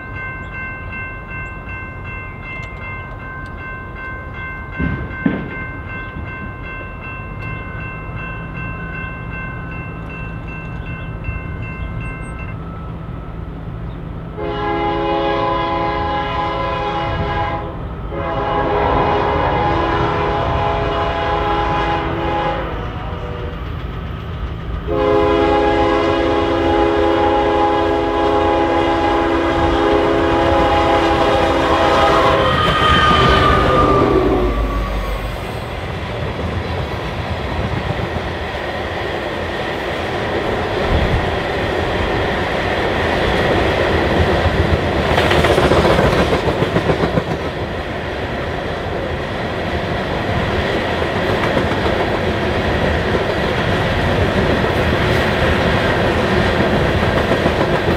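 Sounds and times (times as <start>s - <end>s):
locomotive air horn blasts: 14.4s - 23.6s, 24.9s - 35.4s.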